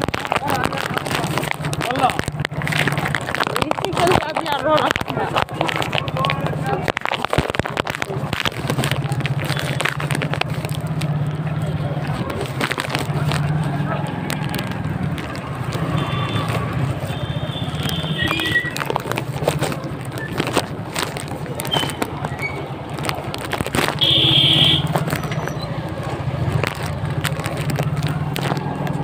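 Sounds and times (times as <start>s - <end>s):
scattered voices: 0.0s - 24.2s
clatter: 0.0s - 29.0s
high-pitched horn-like beep: 24.0s - 24.8s.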